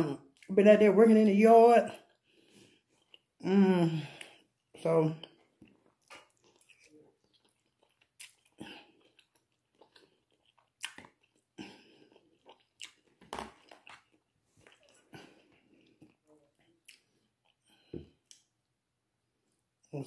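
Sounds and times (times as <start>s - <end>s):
person chewing with mouth smacking: 2.0s - 3.5s, 4.1s - 18.5s.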